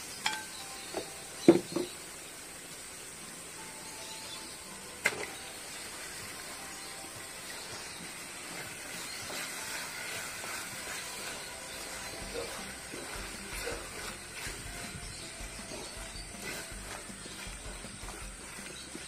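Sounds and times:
spices frying in oil: 0.0s - 19.0s
wooden spatula stirring meat: 5.8s - 19.0s.

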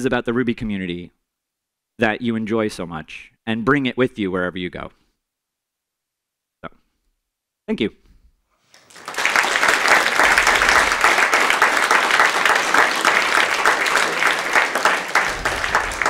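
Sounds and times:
audience applauding: 8.7s - 16.0s.

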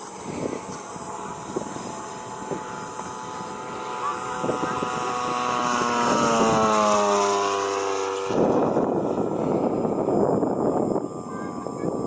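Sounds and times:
model airplane engine flying past: 0.0s - 12.0s.

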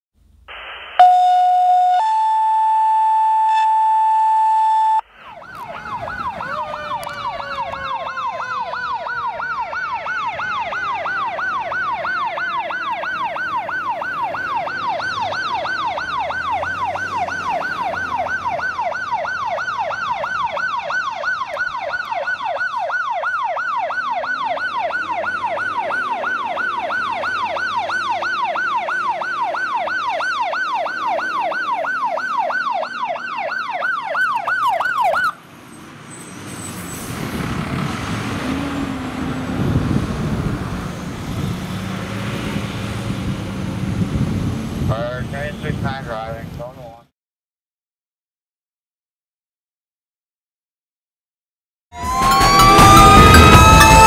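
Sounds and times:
electronic tones: 0.5s - 7.6s, 52.0s - 54.0s
falling siren moan: 1.0s - 35.4s, 52.0s - 54.0s
fire engine siren yelp: 1.0s - 44.9s, 52.0s - 54.0s
truck engine rumble: 2.1s - 33.1s, 34.0s - 46.7s, 52.0s - 54.0s.

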